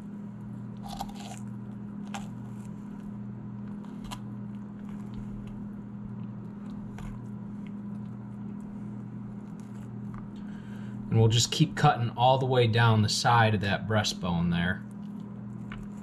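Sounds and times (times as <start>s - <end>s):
steady low hum: 0.0s - 16.0s
knife crunching through bone: 0.8s - 2.7s, 3.8s - 5.6s.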